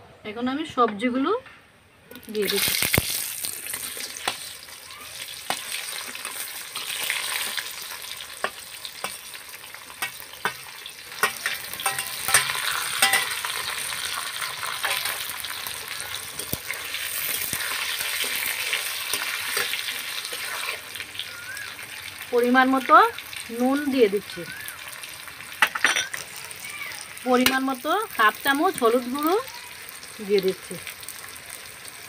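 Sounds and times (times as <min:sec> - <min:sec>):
vegetables sizzling in hot oil: 0:02.1 - 0:32.0
metal spatula scraping pan: 0:10.0 - 0:13.7, 0:14.7 - 0:15.3.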